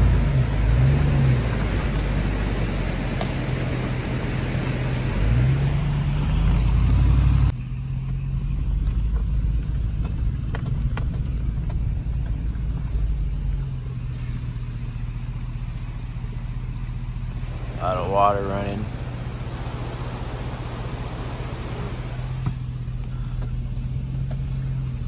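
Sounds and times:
vehicle engine humming: 0.0 - 25.0
loud hissing: 17.3 - 22.4.

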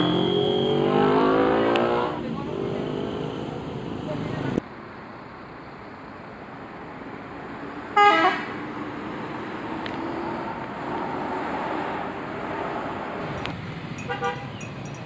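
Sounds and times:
bus engine running: 0.0 - 0.9
bus horn blast: 0.0 - 1.9, 8.0 - 8.6, 14.1 - 14.5.

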